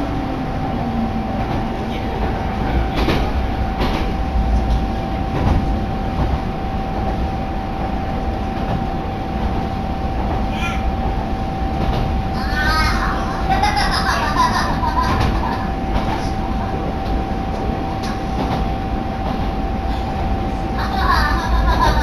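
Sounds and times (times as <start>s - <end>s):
railcar rumble and whine: 0.0s - 22.0s
wheels clacking over rail joints: 1.4s - 6.4s.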